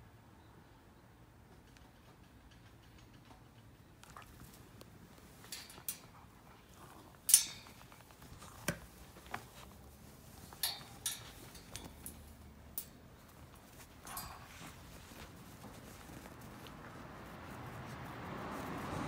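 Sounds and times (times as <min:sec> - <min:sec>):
soft rustling: 0:04.0 - 0:19.0
clinks and knocks: 0:05.4 - 0:06.2, 0:07.3 - 0:08.1, 0:10.4 - 0:15.8.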